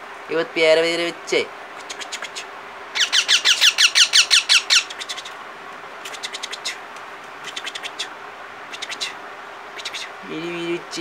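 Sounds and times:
parakeet chicks squawking: 1.8s - 5.4s, 6.1s - 6.8s.

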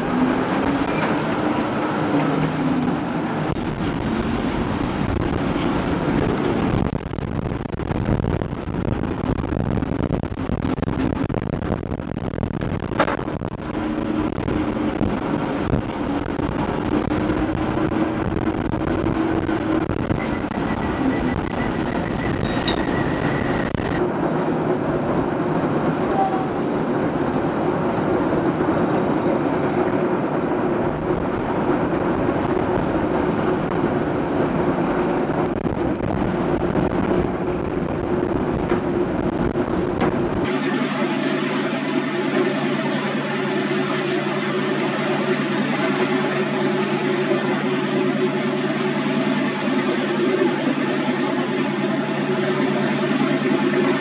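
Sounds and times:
wind on microphone: 0.0s - 40.5s
boat engines running: 0.0s - 54.0s
motorboat engine humming: 0.0s - 54.0s.

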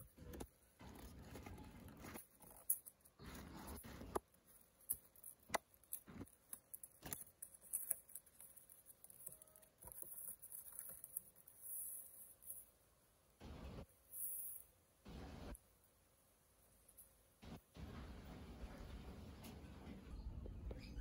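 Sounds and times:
paperboard box rustling: 0.0s - 12.4s.

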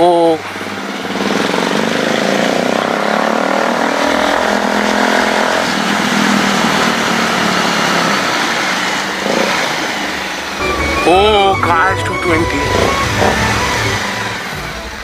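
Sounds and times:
motorcycle engine running: 12.6s - 15.0s.

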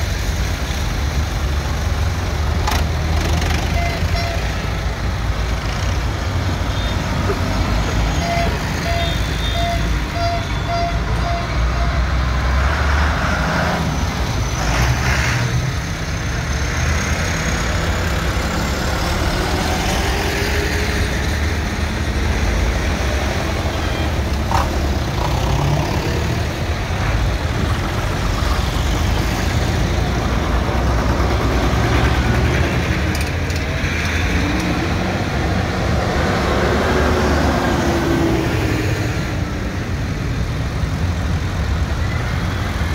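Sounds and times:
tractor engines rumbling past: 0.0s - 42.9s
short beeps: 8.1s - 12.0s.

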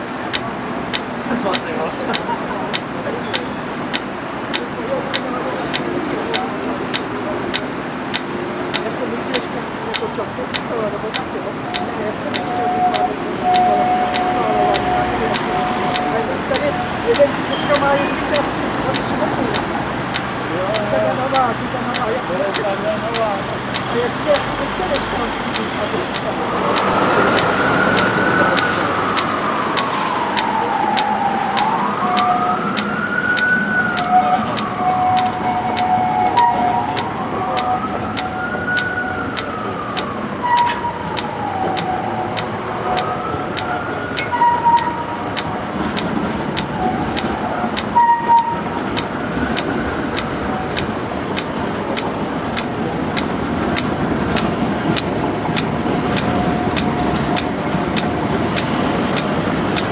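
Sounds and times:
street traffic noise: 0.0s - 59.9s
emergency siren wailing: 11.6s - 23.1s, 23.9s - 59.9s.

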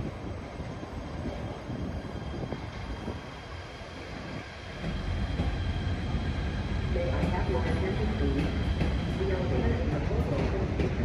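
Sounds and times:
train rumbling on rails: 0.0s - 11.0s.

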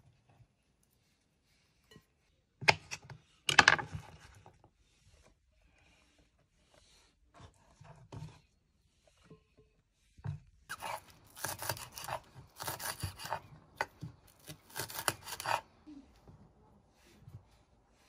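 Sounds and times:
knife chopping on wooden board: 10.7s - 15.6s.

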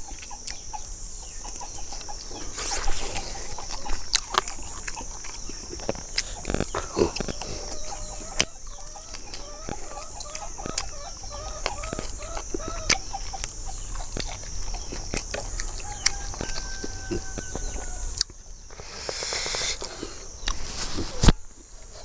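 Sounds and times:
chicken clucking: 0.0s - 22.0s
high insect buzz: 0.0s - 22.0s
rustling hiss: 0.0s - 22.0s
chewing and lip-smacking: 0.1s - 0.8s, 1.4s - 18.4s.

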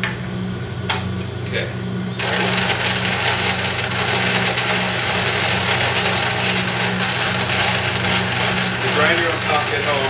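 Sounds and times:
coffee grinder grinding spices: 2.1s - 10.0s.

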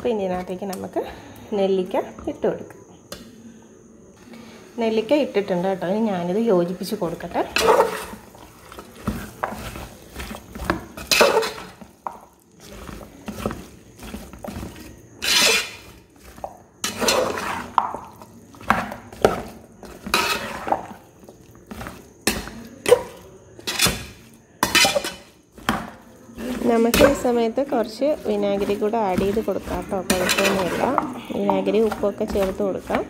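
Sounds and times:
spoon scraping and clinking in pot: 7.2s - 33.0s.

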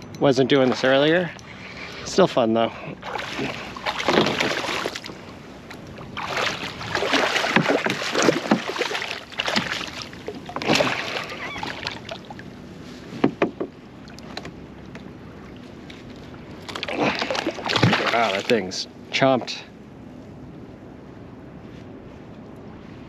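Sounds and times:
fish splashing in water: 3.0s - 5.2s, 6.1s - 12.4s, 16.6s - 18.5s.

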